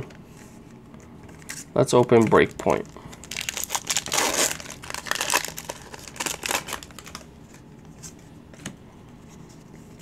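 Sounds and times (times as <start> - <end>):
foil wrapper tearing and crinkling: 3.2 - 7.3.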